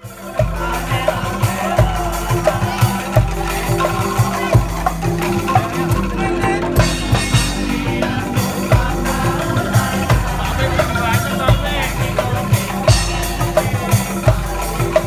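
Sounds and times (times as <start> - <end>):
drum beat: 0.0 - 15.0
wooden xylophones playing: 0.0 - 15.0.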